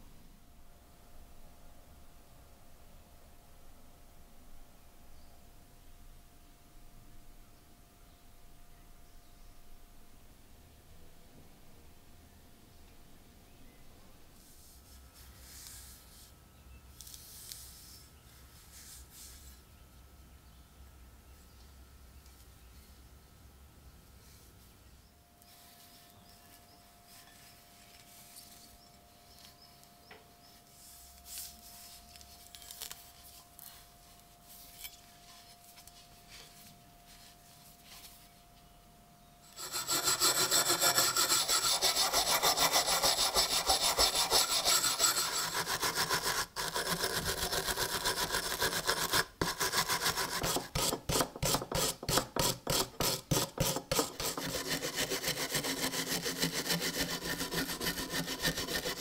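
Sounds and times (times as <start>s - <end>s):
wire brush scrubbing metal: 39.6s - 59.0s.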